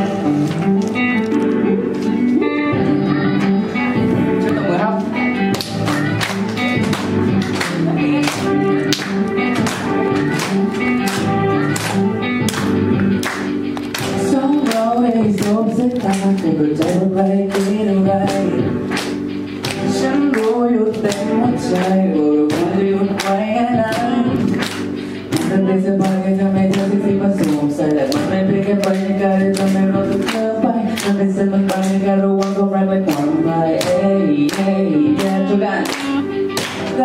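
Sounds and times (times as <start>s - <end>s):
pop backing track with steady beat: 0.0s - 37.0s
man singing into a microphone: 14.1s - 18.9s, 19.8s - 24.6s, 25.2s - 37.0s.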